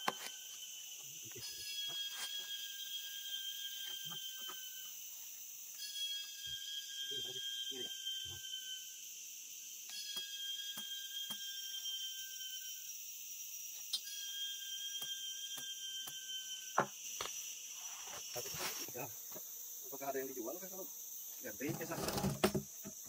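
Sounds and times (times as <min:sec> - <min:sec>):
insects droning: 0:00.0 - 0:23.0
thin whistling tone: 0:05.8 - 0:08.8.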